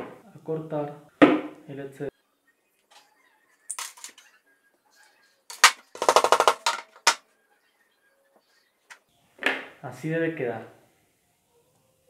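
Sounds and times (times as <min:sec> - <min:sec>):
metal clattering on tabletop: 0:05.5 - 0:07.2.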